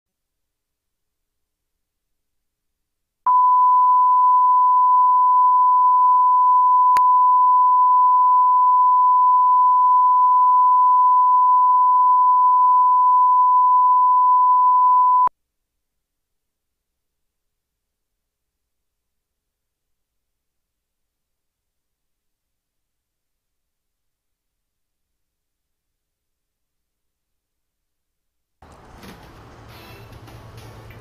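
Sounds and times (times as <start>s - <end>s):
steady pure test tone: 3.3s - 15.3s.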